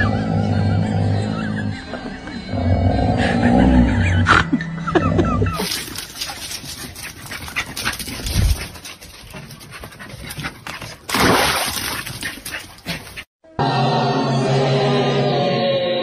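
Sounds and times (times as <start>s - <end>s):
dog panting: 6.0s - 11.1s
dog splashing into water: 11.1s - 12.5s.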